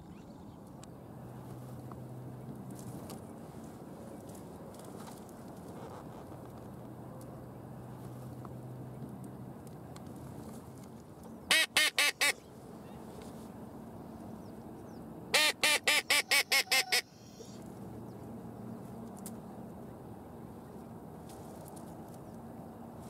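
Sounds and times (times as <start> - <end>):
duck call quacks: 11.5 - 12.4, 15.3 - 17.3.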